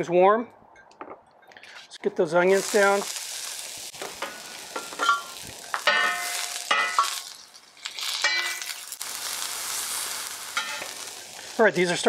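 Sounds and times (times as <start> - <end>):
onions sizzling in oil: 2.4 - 12.0.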